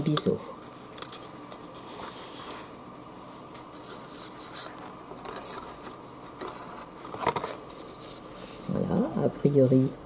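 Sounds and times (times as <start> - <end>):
paper rustling and rubbing: 1.0 - 2.7, 3.7 - 8.8.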